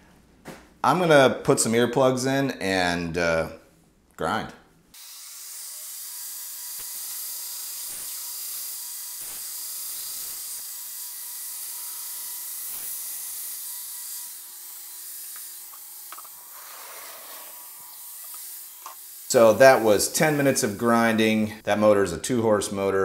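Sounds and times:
steel grinding on abrasive belt: 0:05.0 - 0:21.2.

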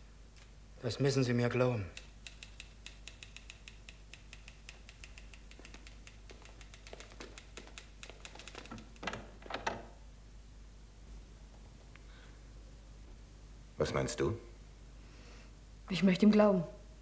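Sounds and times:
typewriter keys clacking: 0:02.4 - 0:09.8.

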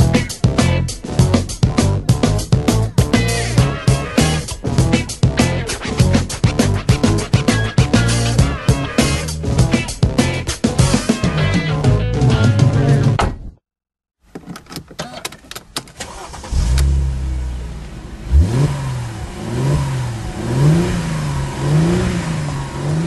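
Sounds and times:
car engine revving: 0:01.0 - 0:11.6, 0:16.1 - 0:23.0.

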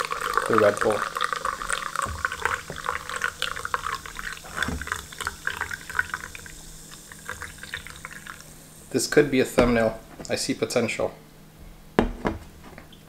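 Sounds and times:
liquid pouring into glass: 0:00.0 - 0:09.8
bubbles fizzing: 0:00.0 - 0:10.0.

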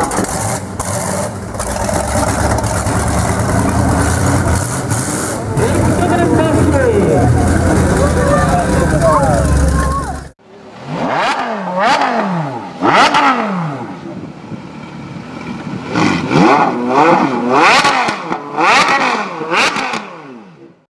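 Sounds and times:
engine revving: 0:00.0 - 0:14.2, 0:15.8 - 0:20.6.

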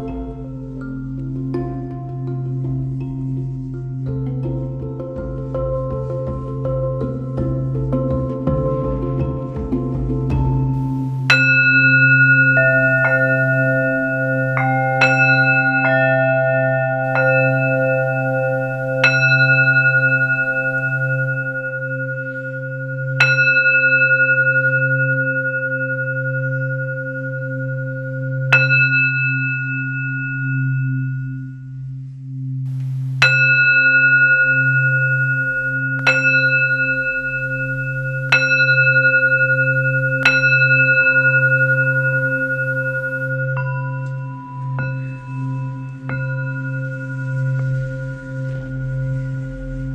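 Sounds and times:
singing bowls ringing: 0:00.0 - 0:09.5, 0:10.4 - 0:49.9
low hum: 0:08.7 - 0:49.9.

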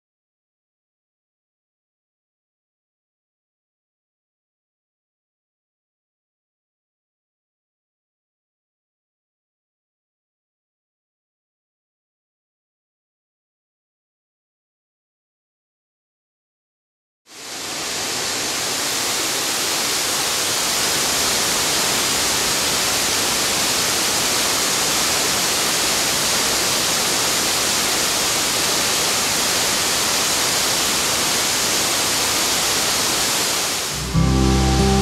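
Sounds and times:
waterfall rushing: 0:17.3 - 0:35.0.

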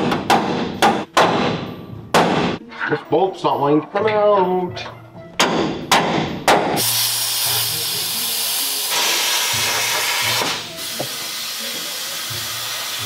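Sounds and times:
plasma cutter hissing: 0:06.8 - 0:13.0.

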